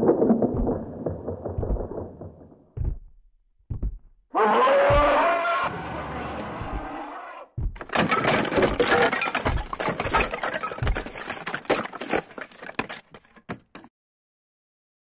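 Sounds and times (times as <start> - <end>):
dense clattering and cracking: 7.8 - 13.9.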